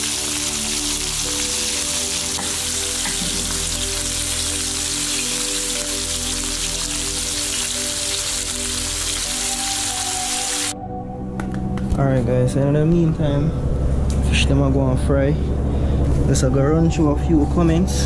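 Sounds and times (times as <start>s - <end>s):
fish sizzling in hot oil: 0.0s - 10.7s
background music: 0.0s - 18.0s.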